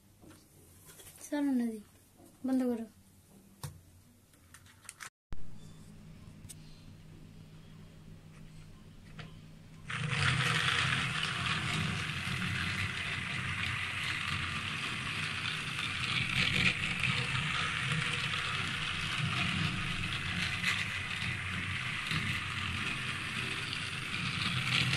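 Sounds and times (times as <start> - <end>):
toy train motor whirring: 9.8 - 24.9
plastic wheels rattling: 9.9 - 24.9.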